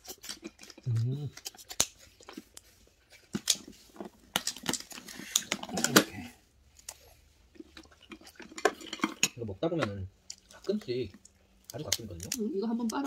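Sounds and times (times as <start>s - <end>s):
crab shell cracking: 0.0s - 2.6s.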